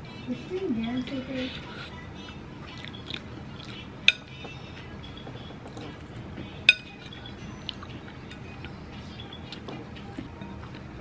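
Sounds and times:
metal spoon clinking ceramic bowl: 6.7s - 7.3s.

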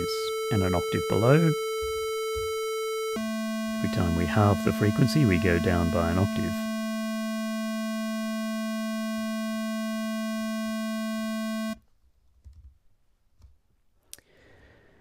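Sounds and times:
square wave tone: 0.0s - 11.8s.

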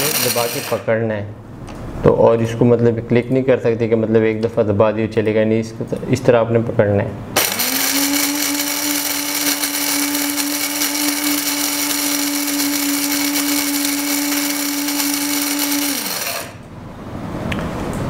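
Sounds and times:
coffee grinder whining: 0.0s - 0.9s, 7.4s - 16.6s.

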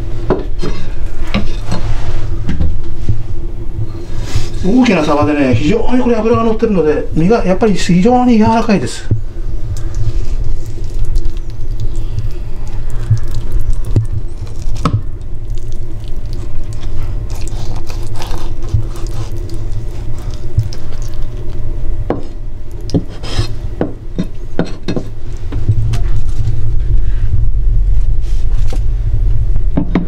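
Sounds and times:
steady low hum: 0.0s - 30.0s
knife scraping fish: 17.3s - 20.1s.

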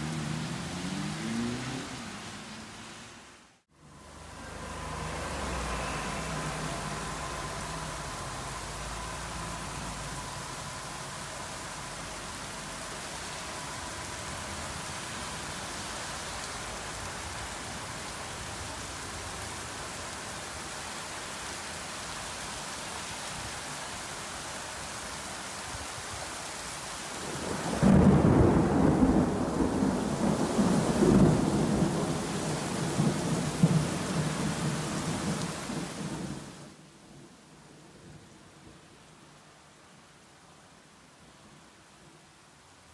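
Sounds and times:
heavy rain on road: 0.0s - 42.9s
rolling thunder: 27.3s - 36.5s.

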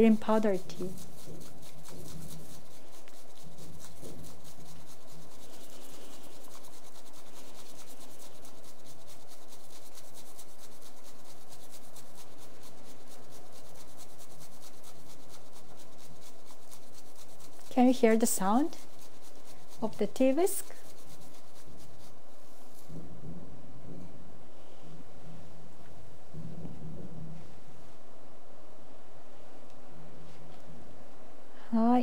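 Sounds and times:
tea whisk swishing in bowl: 0.0s - 23.1s.

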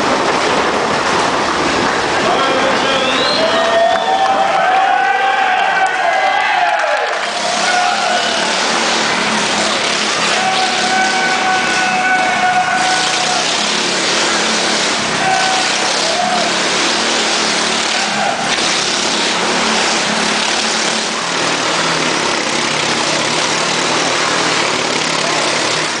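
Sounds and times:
motorcycle engine running hard: 6.9s - 26.0s.

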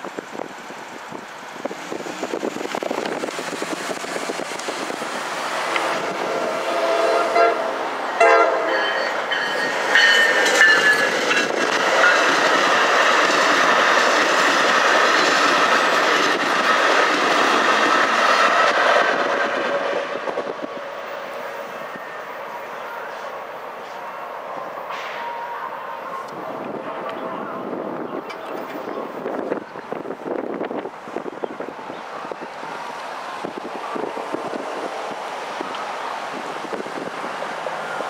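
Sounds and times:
train wheels on rails: 0.0s - 38.0s
train horn: 5.5s - 11.0s, 19.0s - 29.0s.

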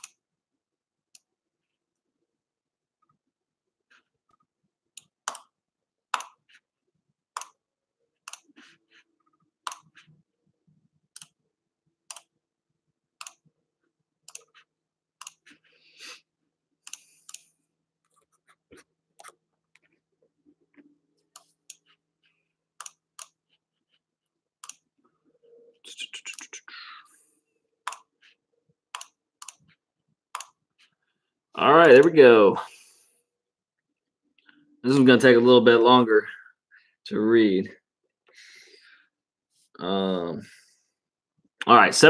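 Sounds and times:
mouse and keyboard clicks: 6.1s - 6.4s, 9.7s - 10.0s, 13.2s - 13.4s, 15.2s - 15.5s, 27.8s - 28.1s, 29.0s - 29.7s, 30.4s - 30.6s.

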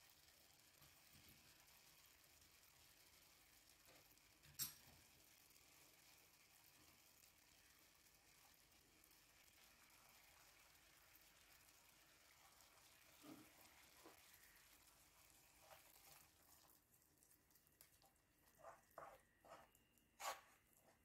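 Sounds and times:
wooden spoon scraping a pan: 12.3s - 16.7s, 18.4s - 21.0s.

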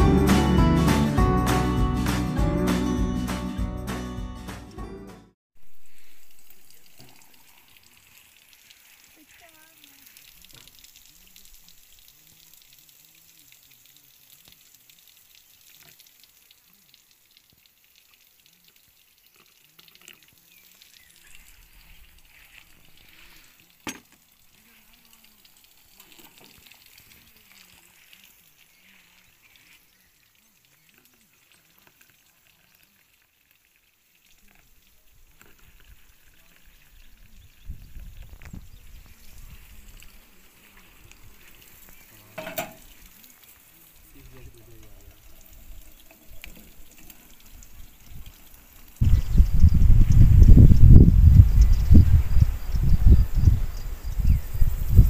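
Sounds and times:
faint steady hiss: 5.6s - 55.0s
tea pouring into plastic cup: 15.5s - 49.3s.

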